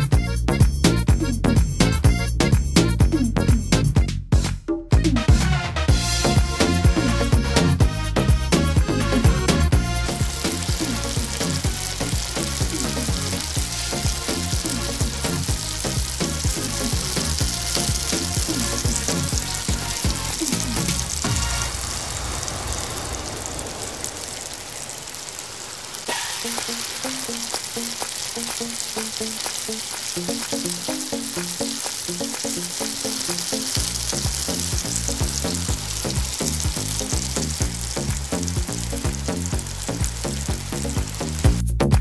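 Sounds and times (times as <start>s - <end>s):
heavy beat: 0.0s - 21.7s, 33.7s - 42.0s
background music: 0.0s - 21.9s, 28.4s - 42.0s
dough balls deep-frying in oil: 5.9s - 42.0s.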